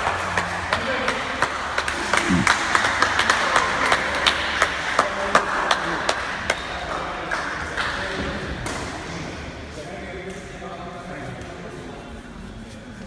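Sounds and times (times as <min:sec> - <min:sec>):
hands clapping: 0:00.0 - 0:08.8
murmur of voices: 0:00.7 - 0:08.4.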